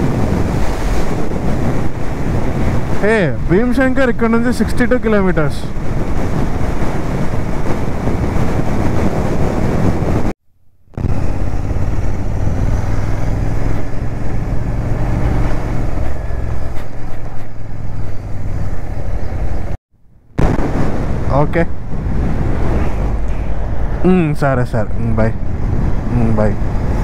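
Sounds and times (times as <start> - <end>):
wind and road noise: 0.0 - 27.0
motorcycle engine running: 11.0 - 19.8.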